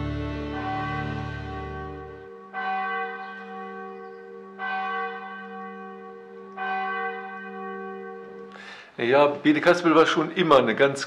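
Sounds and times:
background music: 0.0 - 3.6
church bell tolling: 0.0 - 10.3.

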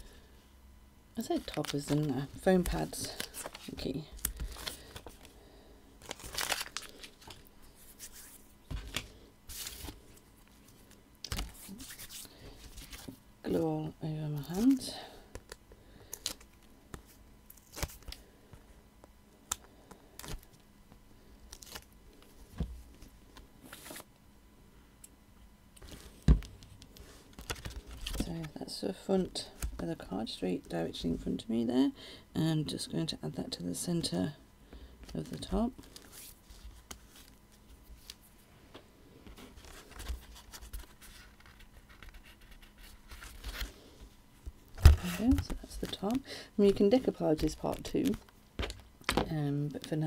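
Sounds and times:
papery rustle: 6.0 - 10.0.

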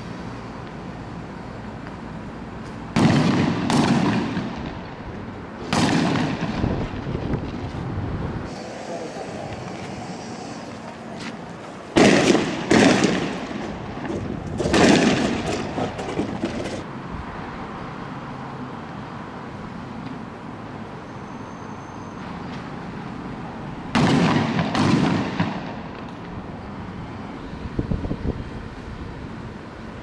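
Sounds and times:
loud explosive bangs: 3.0 - 4.8, 5.6 - 7.3, 11.9 - 15.8, 24.0 - 25.9
steady background hiss: 7.6 - 15.8.

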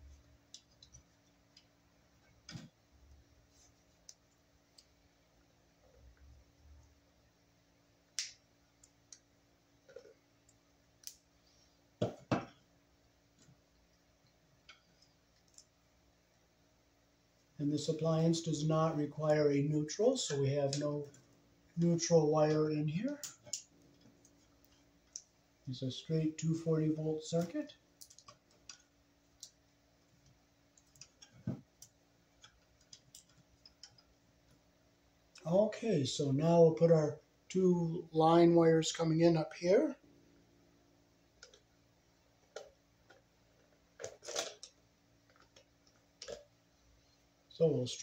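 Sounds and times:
clicks and taps of wires: 14.2 - 15.8, 27.4 - 29.6, 30.2 - 34.6, 42.4 - 46.5.

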